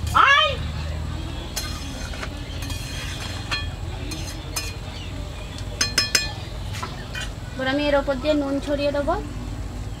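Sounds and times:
metal spatula scraping a pan: 0:01.5 - 0:04.9, 0:06.9 - 0:07.4
ringing taps on metal: 0:05.6 - 0:06.5.

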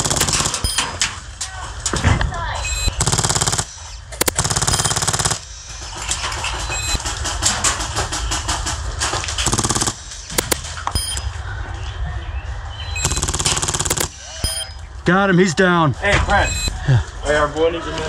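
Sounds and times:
airsoft gun firing bursts: 0:00.0 - 0:00.9, 0:02.9 - 0:05.5, 0:09.4 - 0:10.7, 0:13.0 - 0:14.6.

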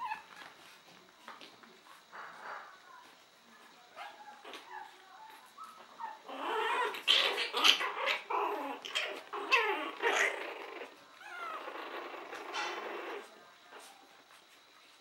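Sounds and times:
puppies growling and yipping: 0:04.1 - 0:13.8.

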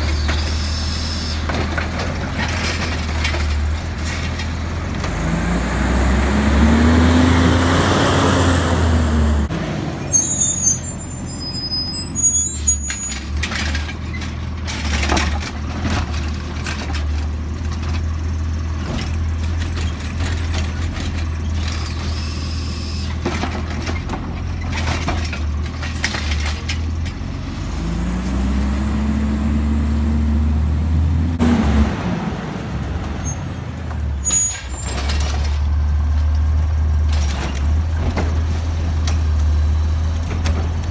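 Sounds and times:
garbage truck diesel engine revving: 0:04.8 - 0:09.8, 0:27.2 - 0:33.0
high squeals: 0:09.8 - 0:13.3, 0:33.0 - 0:35.2.

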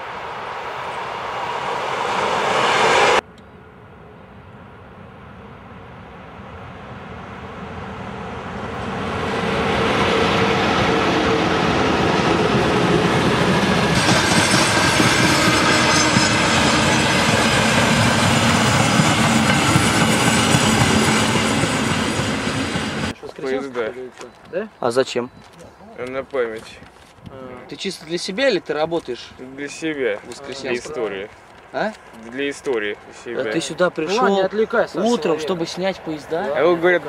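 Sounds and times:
freight train wheels on rails: 0:06.4 - 0:24.5.

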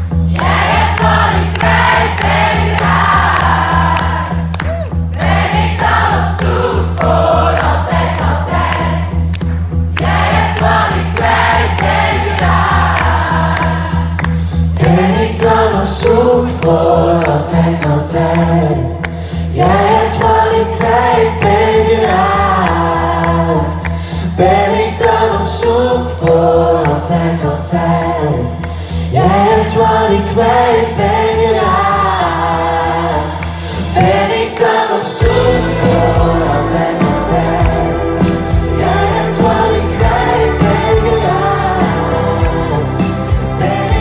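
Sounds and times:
low pulsing bass: 0:00.0 - 0:24.5, 0:35.2 - 0:44.0
man and woman singing: 0:14.8 - 0:44.0
keyboards: 0:28.0 - 0:44.0.

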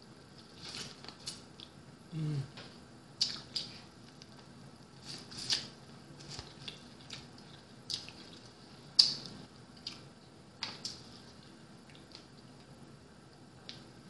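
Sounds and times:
chewing corn on the cob: 0:05.0 - 0:12.8.

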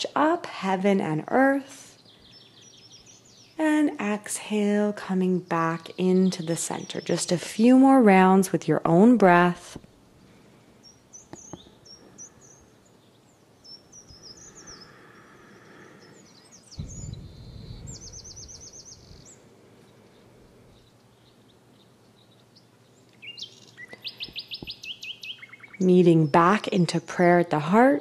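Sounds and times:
bird chirps: 0:10.8 - 0:26.6
bird trill: 0:16.1 - 0:19.4
soft low rumble: 0:16.8 - 0:20.9.

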